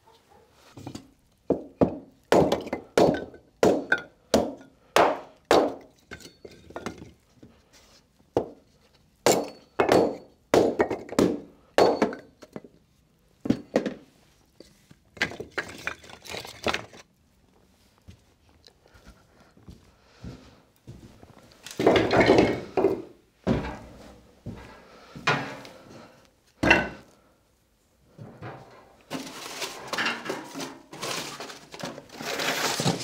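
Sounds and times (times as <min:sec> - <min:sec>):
hatchet chopping wood: 0:01.9 - 0:05.9, 0:09.3 - 0:12.2.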